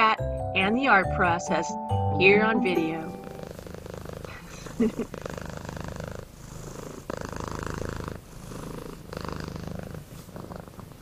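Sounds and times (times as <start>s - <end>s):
cat purring: 3.0s - 11.0s.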